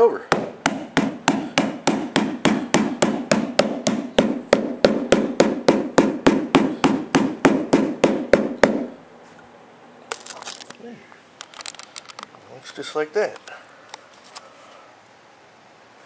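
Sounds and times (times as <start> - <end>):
rubber mallet blows on metal bar: 0.3 - 9.0.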